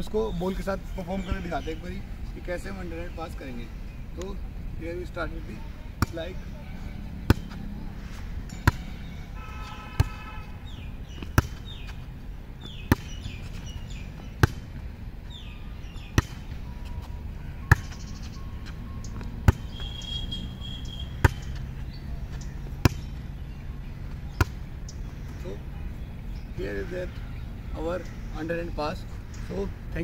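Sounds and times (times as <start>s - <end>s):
volleyball slapping forearms: 8.5s - 9.0s, 11.1s - 12.0s, 12.7s - 13.4s, 14.3s - 14.8s, 16.0s - 16.6s, 21.1s - 21.7s, 22.4s - 23.2s.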